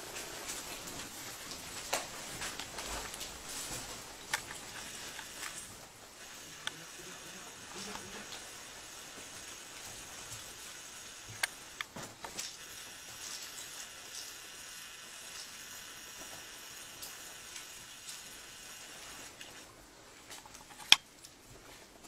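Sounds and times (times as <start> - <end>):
faint steady hiss: 0.0 - 22.0
sharp clicks: 4.2 - 8.5, 11.0 - 14.3.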